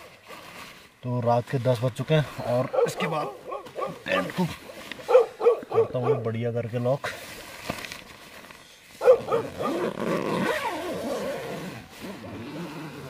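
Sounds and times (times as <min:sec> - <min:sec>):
dogs barking and howling: 0:02.6 - 0:06.3, 0:09.0 - 0:09.9.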